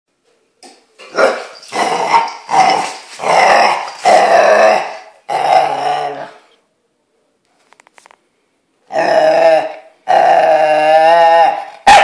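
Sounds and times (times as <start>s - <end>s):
puppy growling and barking: 1.1s - 6.4s, 8.9s - 12.0s.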